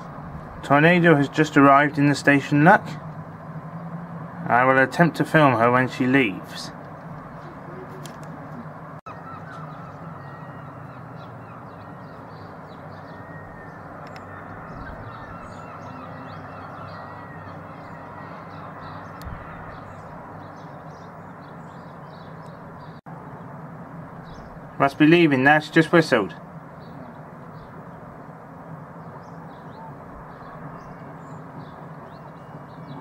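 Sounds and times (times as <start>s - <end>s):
low outdoor background hum: 0.0s - 33.0s
faint bird calls: 7.0s - 23.5s, 29.0s - 33.0s
crows cawing: 9.1s - 21.5s.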